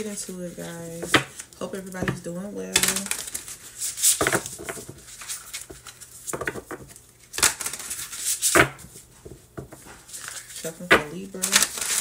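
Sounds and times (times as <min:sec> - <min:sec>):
cards being shuffled: 0:02.7 - 0:09.1, 0:09.7 - 0:12.0.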